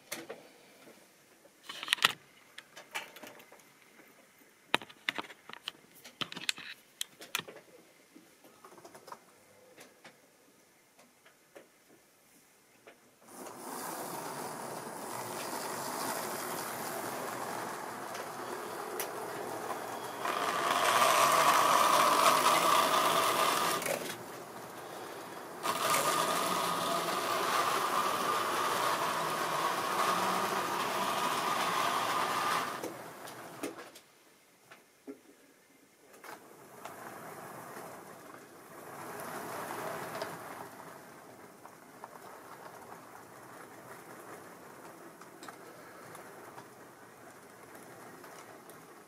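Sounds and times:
model train motor whirring: 0:13.3 - 0:33.9, 0:36.3 - 0:49.0.

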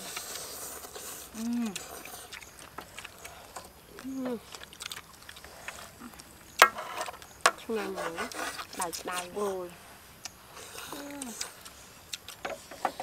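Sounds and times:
person humming: 0:01.3 - 0:01.9, 0:04.0 - 0:04.5, 0:10.9 - 0:11.4.

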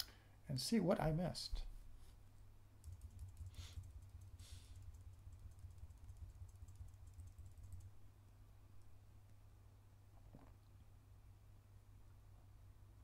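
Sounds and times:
low steady hum: 0:00.0 - 0:13.0
keyboard keys clicking: 0:02.8 - 0:07.9
soft breaths: 0:03.5 - 0:04.8.

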